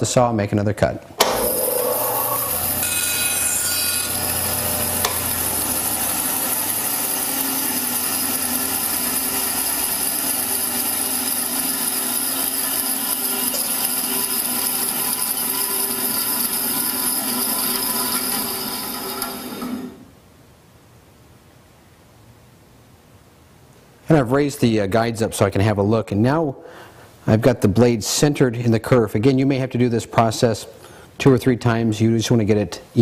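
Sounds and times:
saw blade cutting board: 0:01.2 - 0:20.0
bandsaw whining: 0:01.2 - 0:20.1.

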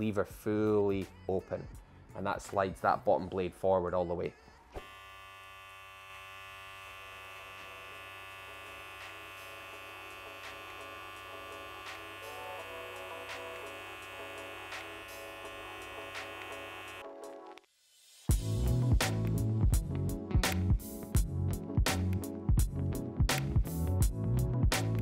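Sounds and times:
hair clipper buzzing: 0:04.8 - 0:17.1.

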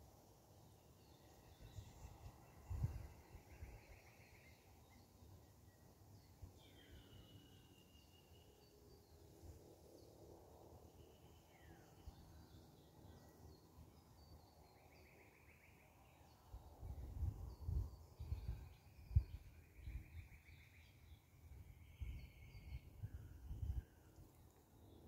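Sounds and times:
wind rumbling on microphone: 0:01.5 - 0:04.0, 0:16.6 - 0:20.4, 0:21.4 - 0:24.3.

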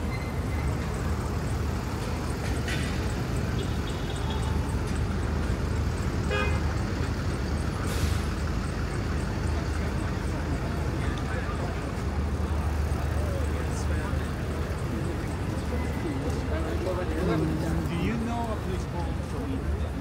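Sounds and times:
passing cars rumbling: 0:00.0 - 0:20.0
car horn toot: 0:06.2 - 0:06.6.

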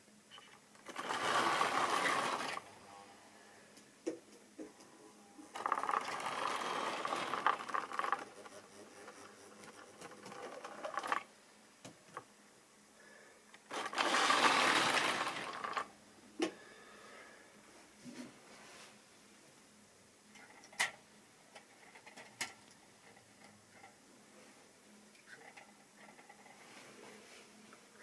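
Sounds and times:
model train wheels clattering: 0:00.8 - 0:02.6, 0:05.6 - 0:11.3, 0:13.7 - 0:15.9.

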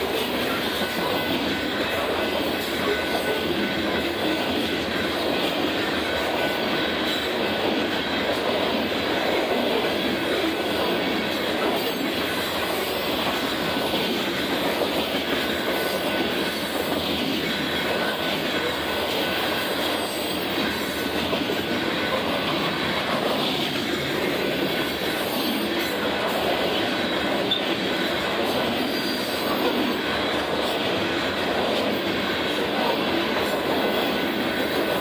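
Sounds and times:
train wheels rumbling on rail: 0:00.0 - 0:35.0.

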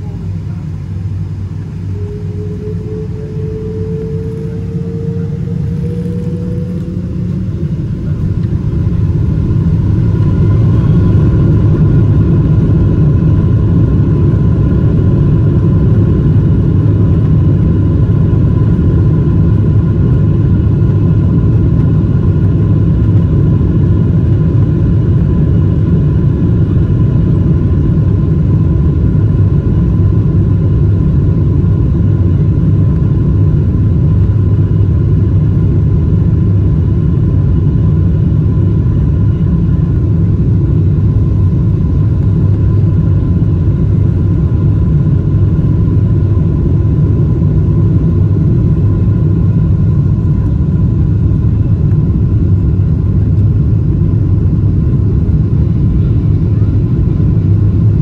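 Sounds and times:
jet engines spooling up: 0:00.0 - 0:15.6.

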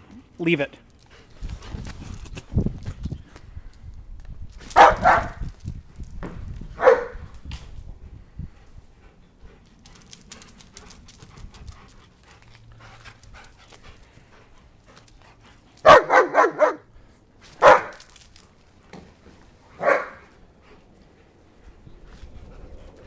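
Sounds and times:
dog barking: 0:04.8 - 0:05.4, 0:06.8 - 0:07.2, 0:15.8 - 0:16.9, 0:17.6 - 0:18.0, 0:19.8 - 0:20.2.

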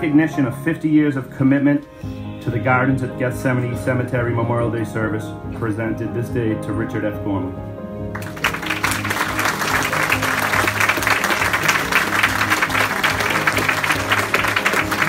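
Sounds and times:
music playing: 0:00.0 - 0:15.0
crowd applauding: 0:08.1 - 0:15.0.

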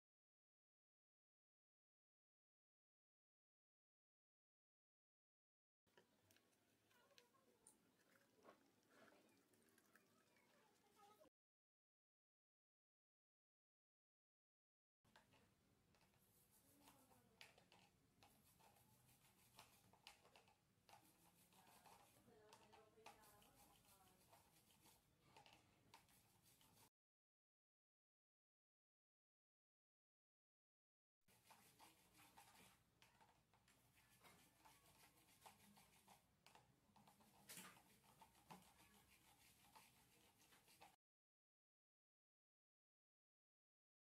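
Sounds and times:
toothbrush scrubbing bicycle chain: 0:06.3 - 0:11.3, 0:16.5 - 0:26.9, 0:31.3 - 0:41.0.

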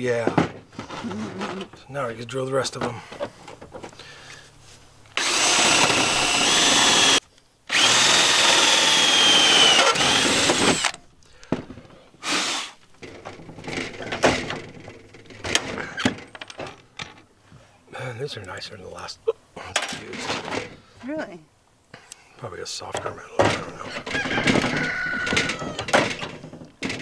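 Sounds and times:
drill boring through metal: 0:05.2 - 0:11.0.

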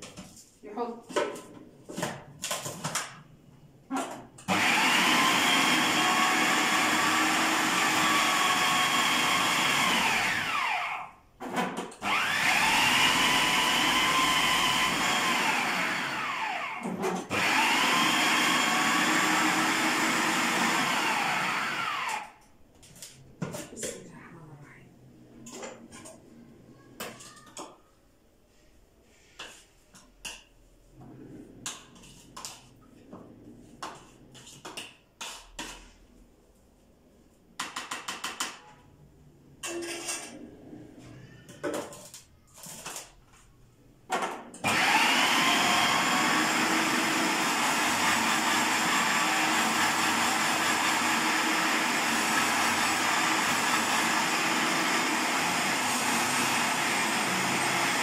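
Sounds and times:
food processor motor running: 0:04.4 - 0:11.1, 0:12.0 - 0:22.4, 0:44.6 - 0:58.0.

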